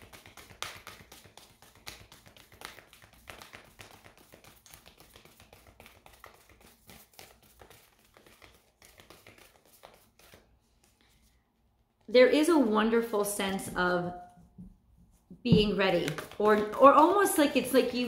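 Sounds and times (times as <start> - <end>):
cards being shuffled: 0.0 - 12.0, 15.6 - 18.0.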